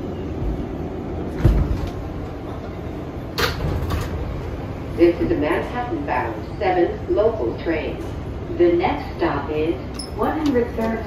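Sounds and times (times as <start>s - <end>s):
subway car low rumble: 0.0s - 11.0s
sliding doors thumping: 1.3s - 2.1s.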